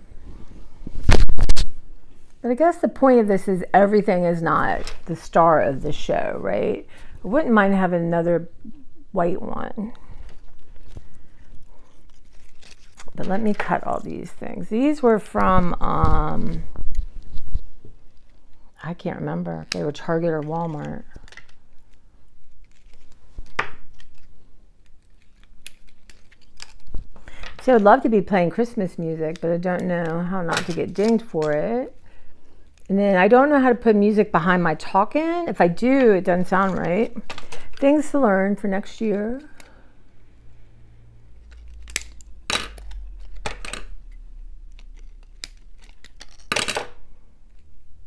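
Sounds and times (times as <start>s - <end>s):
handling rustle: 10.1s - 14.2s, 20.4s - 27.2s
scissors snipping plastic: 24.9s - 27.0s.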